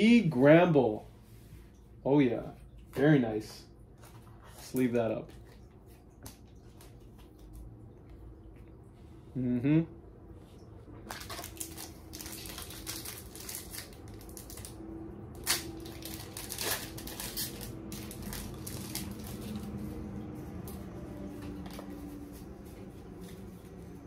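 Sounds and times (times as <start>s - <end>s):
foil wrapper crinkling: 11.0s - 20.1s
sharp foil cracks: 11.1s - 19.4s.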